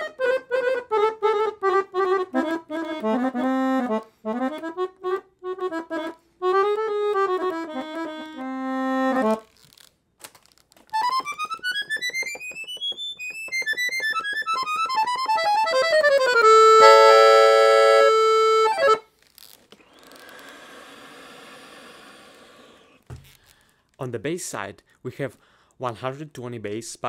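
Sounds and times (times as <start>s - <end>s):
accordion playing: 0.0s - 9.6s, 10.9s - 19.1s.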